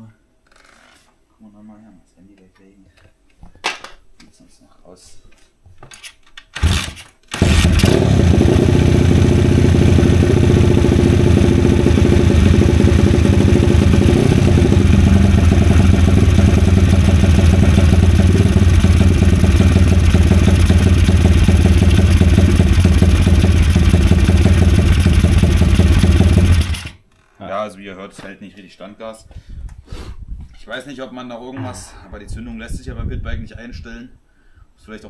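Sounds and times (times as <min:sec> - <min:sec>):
motorcycle engine starting and idling: 0:06.6 - 0:27.0.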